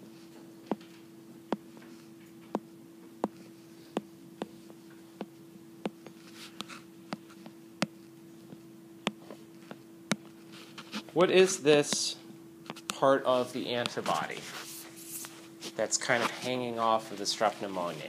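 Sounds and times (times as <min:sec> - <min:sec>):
steady hum: 0:00.0 - 0:18.0
stylus tapping on tablet screen: 0:00.7 - 0:01.9, 0:02.5 - 0:10.4.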